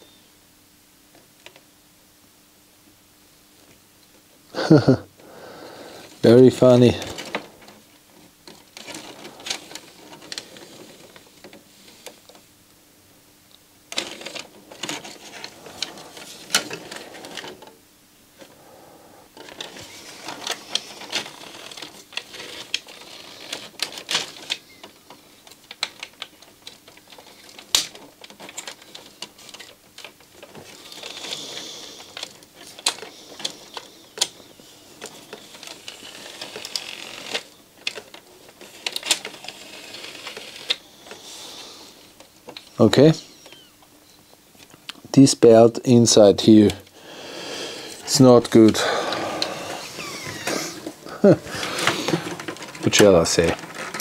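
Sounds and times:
plastic mechanism clicking and rattling: 0:06.0 - 0:12.4, 0:13.9 - 0:17.8, 0:19.3 - 0:41.2, 0:47.9 - 0:54.0.

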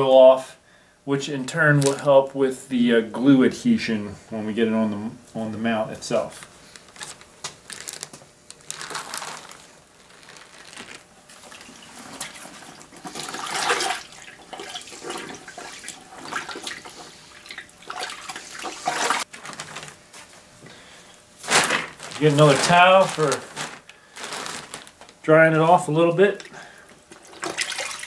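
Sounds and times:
hide sloshing in bucket of water: 0:10.7 - 0:19.3, 0:27.1 - 0:28.0.

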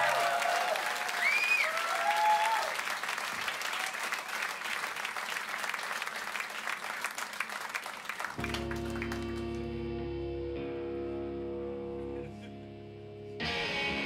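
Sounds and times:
audience applauding: 0:00.0 - 0:09.7
sustained electric guitar chord: 0:08.4 - 0:14.0.

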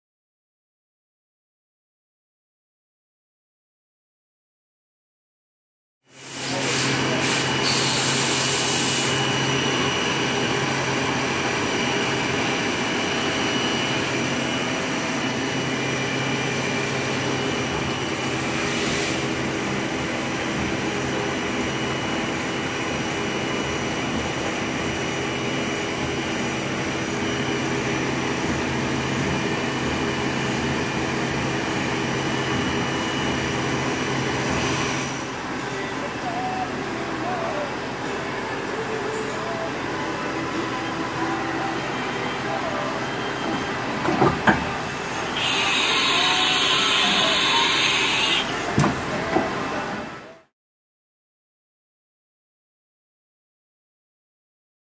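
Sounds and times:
milling machine whine: 0:06.2 - 0:50.3
spindle and coolant spray hiss: 0:45.4 - 0:48.4.

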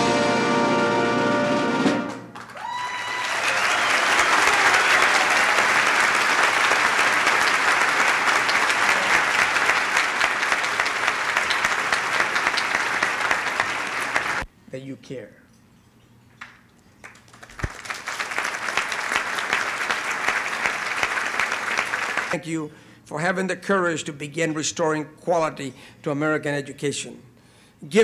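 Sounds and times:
music: 0:00.0 - 0:02.3
large audience applauding: 0:02.3 - 0:14.5, 0:17.0 - 0:22.4.

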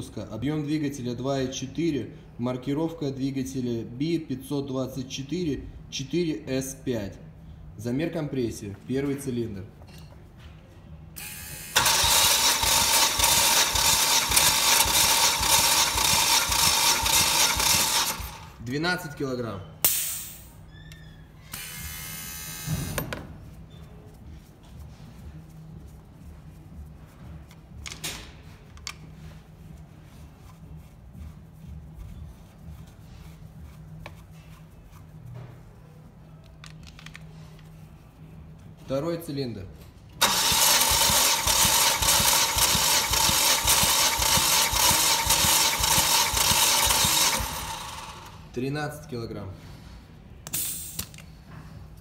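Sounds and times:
starter motor cranking engine: 0:11.7 - 0:18.6, 0:40.2 - 0:48.5
steady low hum: 0:21.3 - 0:40.2.

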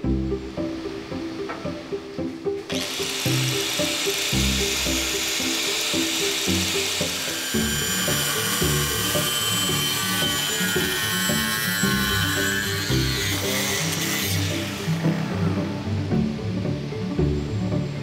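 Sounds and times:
background music with steady beat: 0:00.0 - 0:18.0
harsh hissing power tool: 0:02.7 - 0:15.1.

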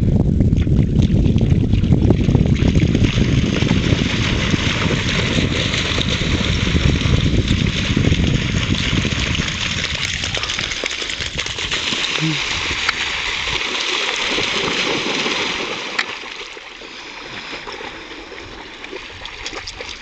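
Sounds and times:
wind buffeting microphone: 0:00.0 - 0:13.6
dogs splashing through water: 0:01.0 - 0:20.0.

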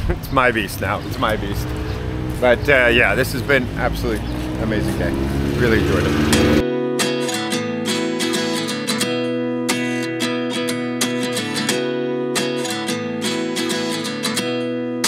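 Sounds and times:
acoustic guitar strumming chords: 0:05.2 - 0:15.0.

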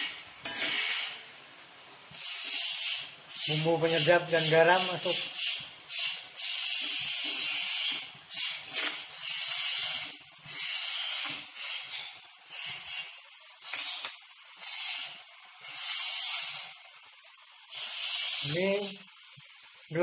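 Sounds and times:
metal spatula scraping wok: 0:00.0 - 0:01.3, 0:02.2 - 0:12.2
vegetables sizzling in a wok: 0:00.0 - 0:20.0.

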